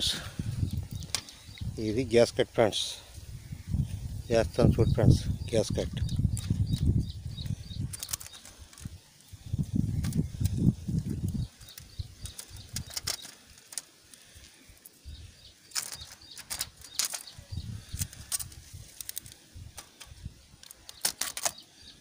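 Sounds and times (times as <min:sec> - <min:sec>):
wind buffeting microphone: 0:00.0 - 0:02.1, 0:03.1 - 0:13.1, 0:17.2 - 0:20.6.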